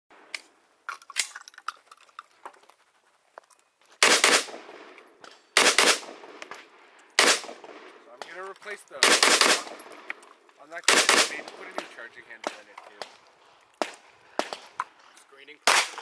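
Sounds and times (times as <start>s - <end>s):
rifle gunshots: 4.0s - 5.0s, 5.6s - 6.5s, 7.2s - 8.4s, 9.0s - 10.1s, 10.8s - 13.2s, 13.8s - 14.7s, 15.6s - 16.0s.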